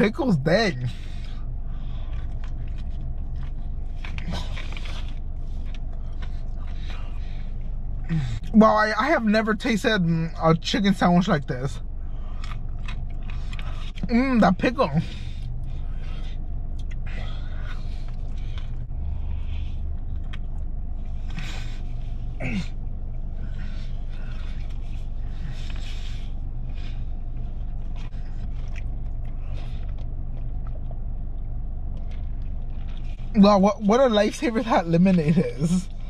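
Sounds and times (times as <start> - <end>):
chewing crunches and mouth noises: 0.0 - 36.0
steady low rumble: 0.0 - 36.0.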